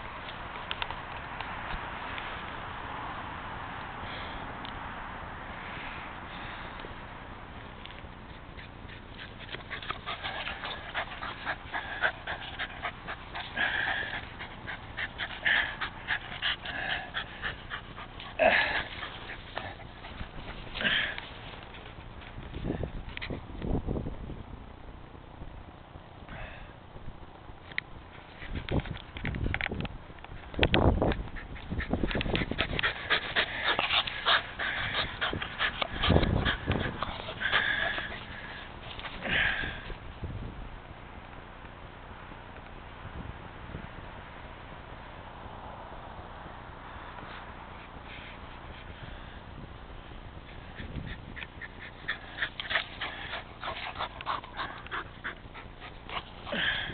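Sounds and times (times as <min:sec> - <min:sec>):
low buffeting rumble: 0:00.0 - 0:56.9
dog panting heavily: 0:08.6 - 0:22.4, 0:31.2 - 0:39.6, 0:50.4 - 0:56.9.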